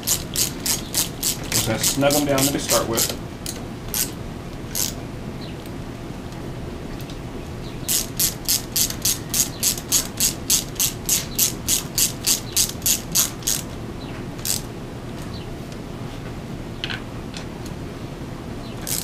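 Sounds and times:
ratchet clicking: 0:00.0 - 0:05.0, 0:07.9 - 0:13.7, 0:14.4 - 0:14.7.

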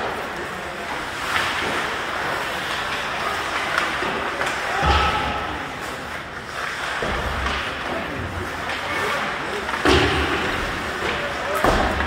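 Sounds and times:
murmur of spectators: 0:00.0 - 0:12.0
clicks of hockey play: 0:01.1 - 0:05.4.

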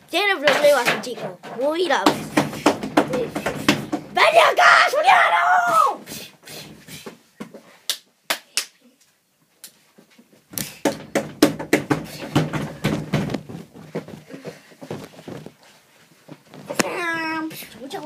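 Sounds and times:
hand slaps: 0:07.9 - 0:08.8, 0:10.5 - 0:13.4.

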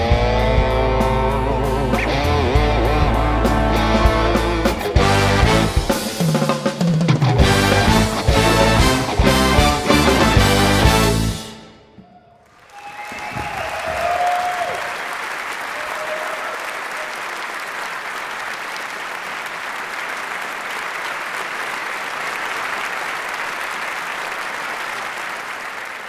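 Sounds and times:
audience applauding: 0:07.4 - 0:11.0, 0:12.3 - 0:26.0
audience cheers: 0:12.0 - 0:26.0.

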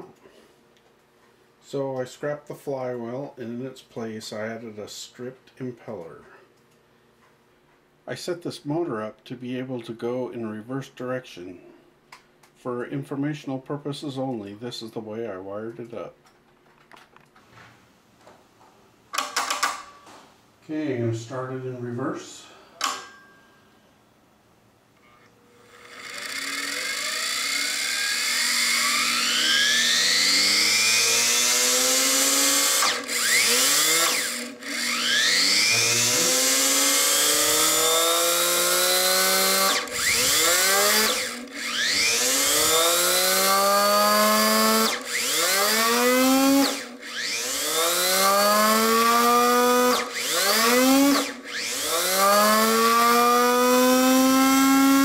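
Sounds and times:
vacuum motor whining: 0:25.3 - 0:55.0.

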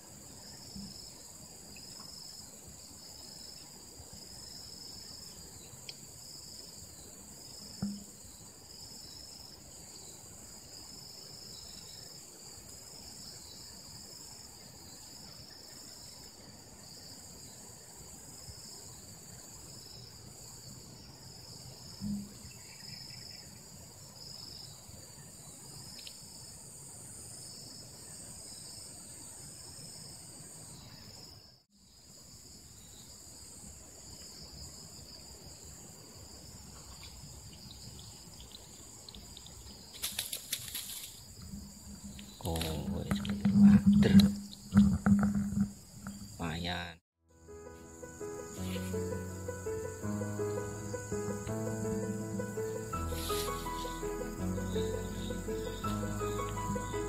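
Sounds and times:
insects chirping: 0:00.0 - 0:57.0
brief thumps: 0:07.8 - 0:08.1, 0:22.0 - 0:22.4
high continuous buzz: 0:47.4 - 0:57.0.

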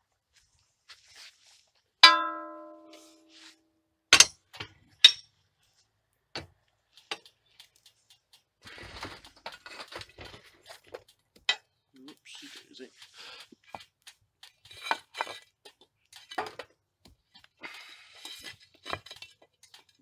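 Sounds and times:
sharp metal knocks: 0:02.0 - 0:03.2, 0:04.1 - 0:04.4
metal clang on firebox: 0:02.0 - 0:03.3, 0:04.1 - 0:05.3
rattling scrape in burning coal: 0:07.6 - 0:11.2, 0:12.1 - 0:16.7, 0:17.6 - 0:20.0.

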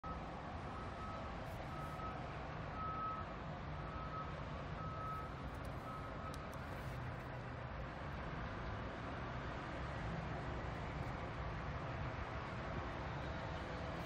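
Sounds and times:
reversing alarm beeping: 0:02.8 - 0:03.2, 0:03.8 - 0:06.4.

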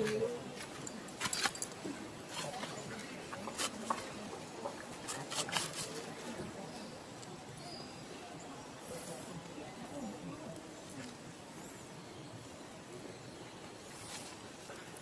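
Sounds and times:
faint outdoor hiss: 0:00.0 - 0:15.0.

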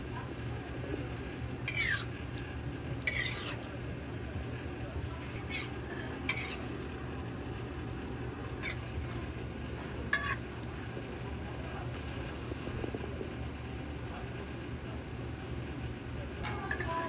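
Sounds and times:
oil sizzling on griddle: 0:00.0 - 0:17.0
metal press scraping griddle: 0:03.0 - 0:03.6.

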